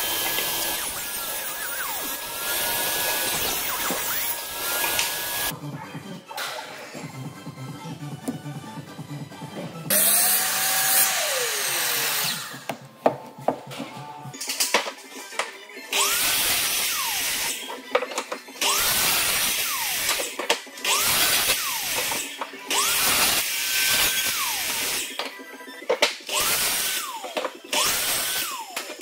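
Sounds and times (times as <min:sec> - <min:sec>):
miter saw motor whining: 0:00.0 - 0:05.5, 0:09.9 - 0:12.7
saw cutting through board: 0:00.0 - 0:05.5, 0:09.9 - 0:12.7, 0:15.9 - 0:17.8, 0:18.6 - 0:25.2, 0:26.2 - 0:29.0
background music: 0:00.0 - 0:29.0.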